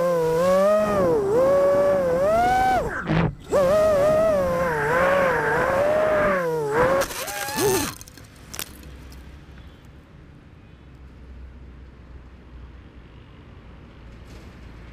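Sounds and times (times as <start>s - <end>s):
motor whine: 0.0s - 8.0s.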